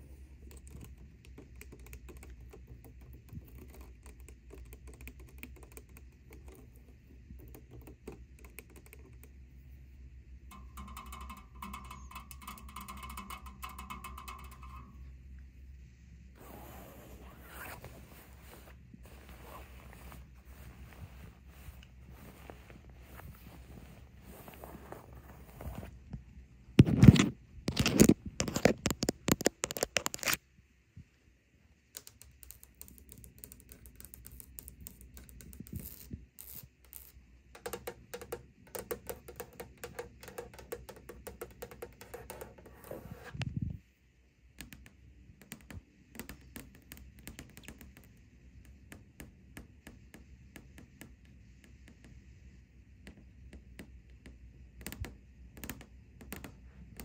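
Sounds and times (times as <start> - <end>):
nail tapping on hard surfaces: 10.5 - 15.0, 37.6 - 42.7
fingernails scratching bed sheets: 16.4 - 26.0.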